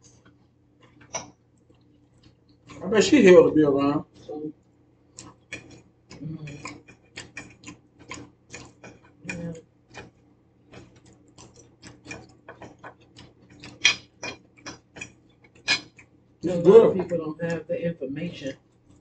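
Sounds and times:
chewing: 0:00.1 - 0:03.1, 0:05.1 - 0:17.6
cutlery clicking on plates: 0:13.6 - 0:16.0.

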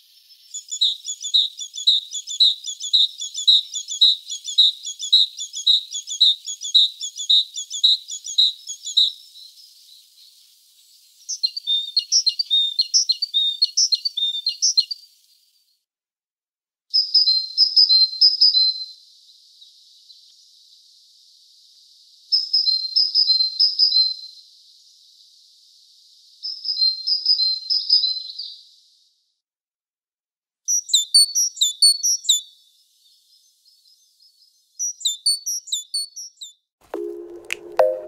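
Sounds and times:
high bird chirping: 0:34.8 - 0:38.0
bird singing high notes: 0:37.0 - 0:38.0.

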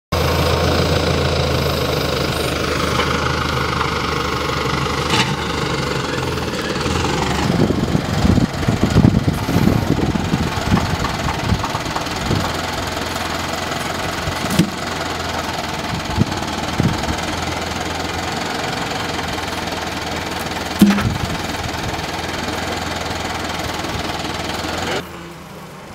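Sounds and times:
tractor diesel engine running: 0:00.1 - 0:25.9
logs knocking and thumping: 0:14.4 - 0:15.0, 0:20.7 - 0:21.4.

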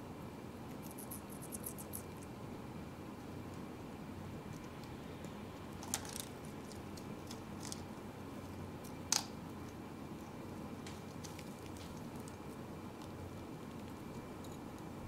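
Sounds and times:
low steady hum: 0:00.0 - 0:15.0
beak clicking on cork perch: 0:00.7 - 0:02.2.

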